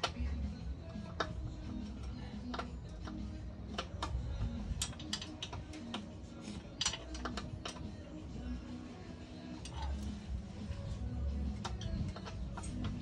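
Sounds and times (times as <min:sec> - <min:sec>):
background music: 0:00.0 - 0:13.0
wrench metallic clicks: 0:01.2 - 0:07.9.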